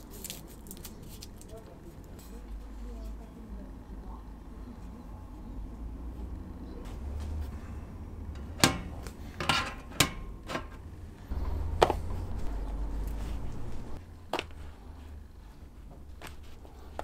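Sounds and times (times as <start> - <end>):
low rumble: 11.2 - 14.0.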